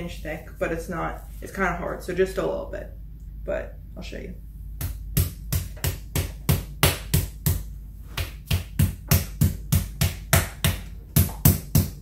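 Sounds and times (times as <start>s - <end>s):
meat mallet pounding chicken: 4.8s - 12.0s.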